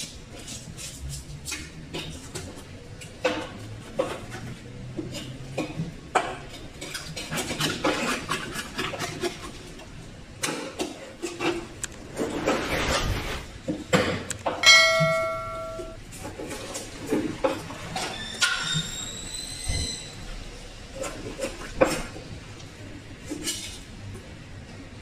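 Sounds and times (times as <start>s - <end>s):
knife cutting and scraping fish: 0.0s - 9.9s
short metallic ring: 14.6s - 16.0s.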